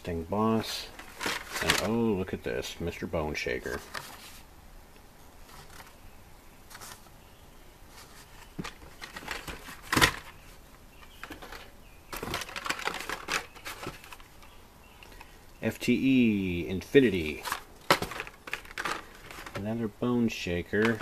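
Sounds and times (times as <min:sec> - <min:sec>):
plastic packs clicking and clacking: 0:00.6 - 0:02.1, 0:08.0 - 0:15.3, 0:17.1 - 0:21.0.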